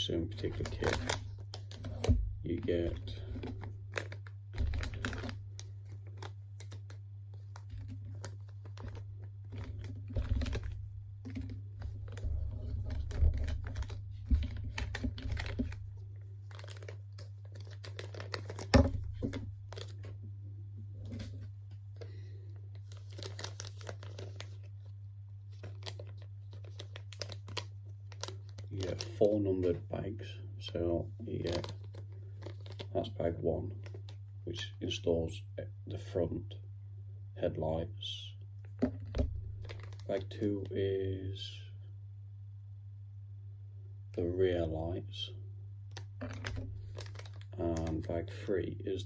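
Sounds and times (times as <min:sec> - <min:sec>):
plastic bags crinkling: 0:00.3 - 0:20.1, 0:21.0 - 0:24.9, 0:25.5 - 0:29.3, 0:31.3 - 0:33.1, 0:39.0 - 0:40.1, 0:45.9 - 0:48.4.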